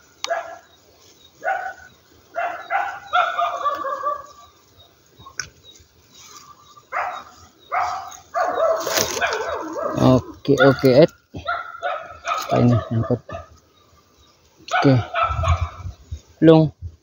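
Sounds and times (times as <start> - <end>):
dog barking and yipping: 0.2 - 0.8, 1.4 - 4.5, 6.8 - 13.6, 14.7 - 15.9.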